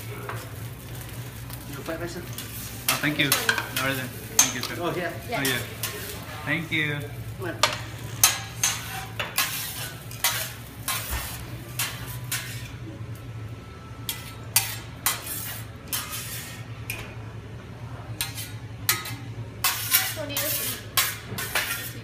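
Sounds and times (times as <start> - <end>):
steel spatulas scraping a griddle: 2.2 - 6.8, 7.6 - 12.8, 14.0 - 16.8, 18.2 - 22.0.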